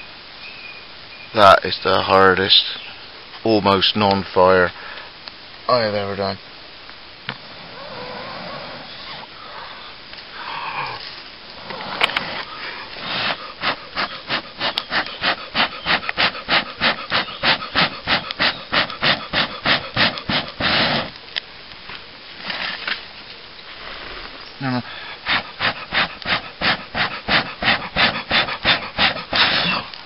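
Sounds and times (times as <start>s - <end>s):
rapid puffs of breath: 12.2s - 21.1s, 23.8s - 29.9s.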